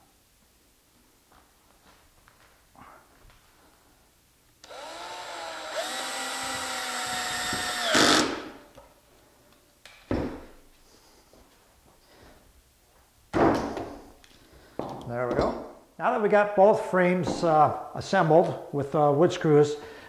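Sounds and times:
cordless drill motor whine: 0:04.6 - 0:08.4.

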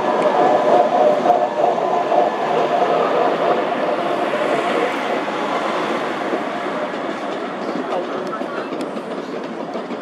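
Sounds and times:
rumble of train wheels on rails: 0:00.0 - 0:10.0.

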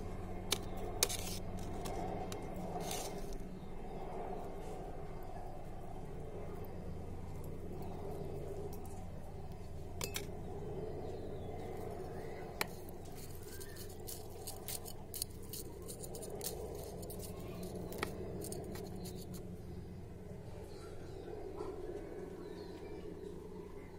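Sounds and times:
low background rumble: 0:00.0 - 0:23.9
spoon and knife clicking in soil: 0:10.0 - 0:10.3, 0:12.6 - 0:19.4.

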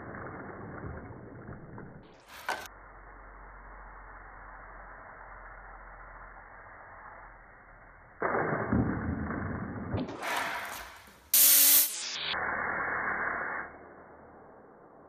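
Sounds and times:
compressed air hissing from hose: 0:11.4 - 0:12.2.

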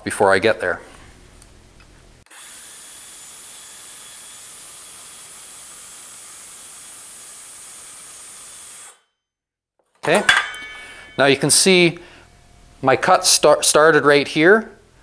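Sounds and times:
small power tool motor running: 0:02.3 - 0:09.1.

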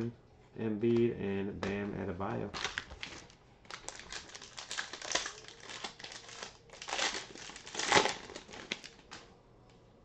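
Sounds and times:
foil wrapper crinkling: 0:02.4 - 0:09.2.

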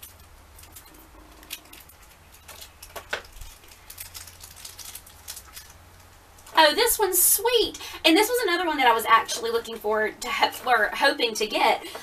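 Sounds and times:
packaging crinkling: 0:00.0 - 0:06.6.

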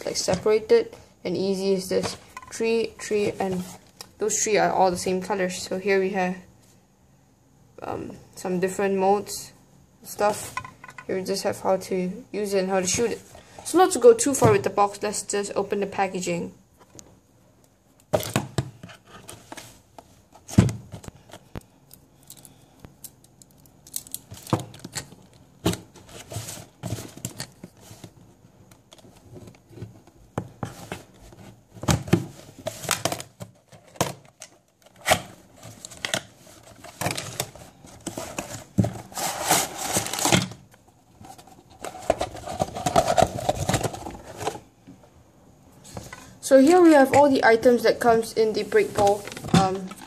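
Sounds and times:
cardboard and packaging rustling: 0:18.1 - 0:21.6, 0:24.0 - 0:44.8, 0:45.8 - 0:50.0.

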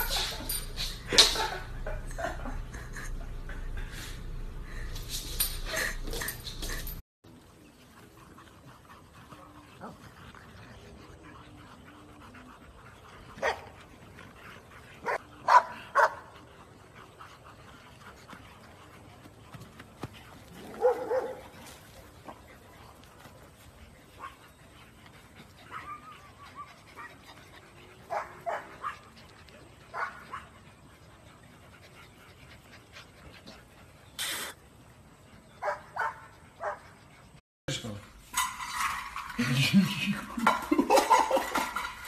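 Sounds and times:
dogs barking: 0:13.2 - 0:13.8, 0:14.9 - 0:16.4, 0:20.6 - 0:21.5, 0:28.0 - 0:29.2, 0:29.9 - 0:30.8, 0:35.6 - 0:37.0
puppies yipping and whining: 0:23.5 - 0:37.2.

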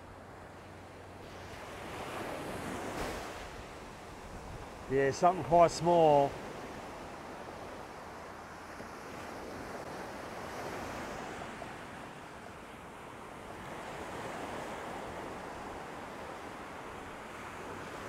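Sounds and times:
ocean surf breaking on beach: 0:00.1 - 0:18.0
wind on microphone: 0:01.7 - 0:05.0.

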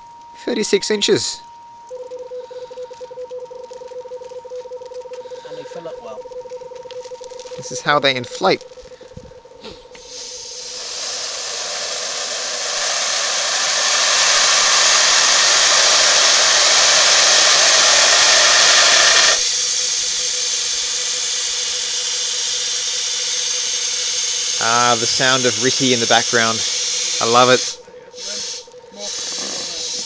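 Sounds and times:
gas hissing into balloon: 0:09.6 - 0:30.0.

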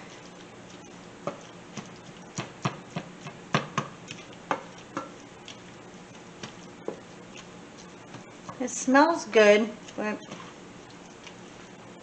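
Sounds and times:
spatula tapping a frying pan: 0:02.3 - 0:05.2.

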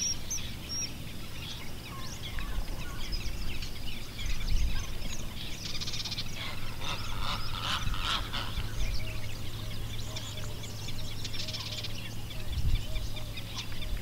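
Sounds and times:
small birds chirping: 0:00.0 - 0:14.0
honking fowl call: 0:06.4 - 0:08.7.

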